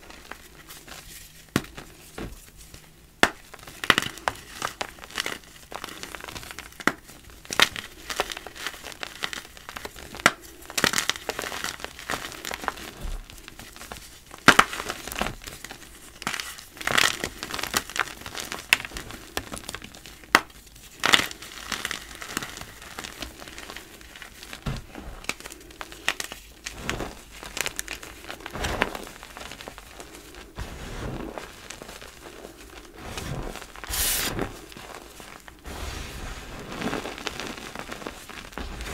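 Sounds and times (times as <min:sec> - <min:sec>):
hands rustling in powder: 0:00.0 - 0:38.9
chalk crunching by hand: 0:28.5 - 0:38.9.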